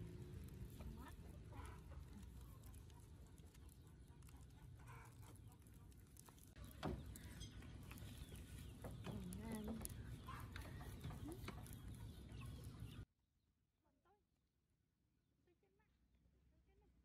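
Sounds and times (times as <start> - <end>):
chickens clucking: 0.6 - 13.0.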